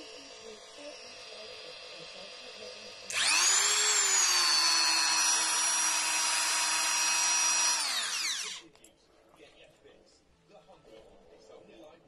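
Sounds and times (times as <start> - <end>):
rotary tool motor whine: 0.0 - 8.7.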